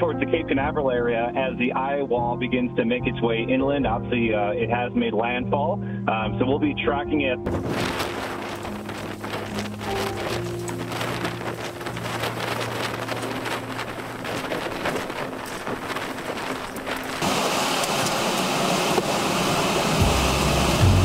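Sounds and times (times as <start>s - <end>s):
low steady music tones: 0.0s - 17.2s
hurricane wind buffeting microphone: 7.5s - 20.7s
heavy rain: 7.5s - 21.0s.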